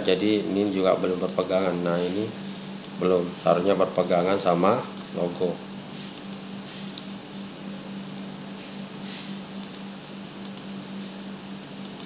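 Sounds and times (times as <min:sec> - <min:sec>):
electrical hum and hiss: 0:00.0 - 0:12.0
computer mouse clicks: 0:01.3 - 0:01.6, 0:06.1 - 0:07.1, 0:09.6 - 0:10.7.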